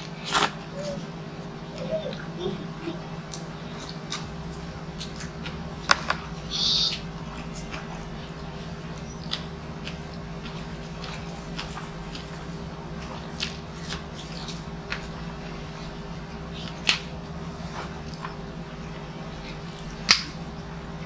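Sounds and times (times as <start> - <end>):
low hum: 0.0 - 21.0
wet chewing with lip smacks: 3.2 - 6.3, 6.9 - 20.6.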